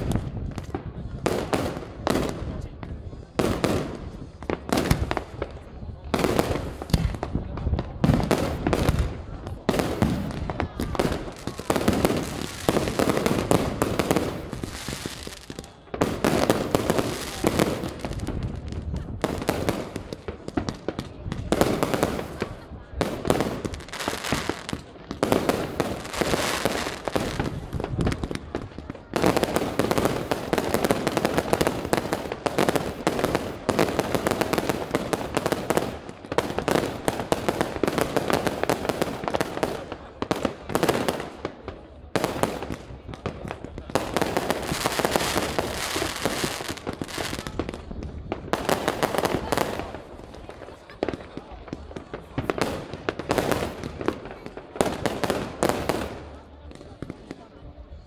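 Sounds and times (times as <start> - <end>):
fireworks bangs and crackling: 0.0 - 58.0.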